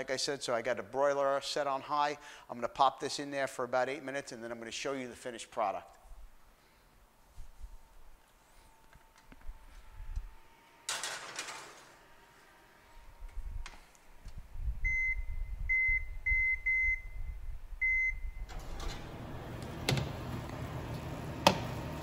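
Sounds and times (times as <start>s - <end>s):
short high oven beeps: 14.8s - 18.9s
oven door shutting: 18.4s - 22.0s.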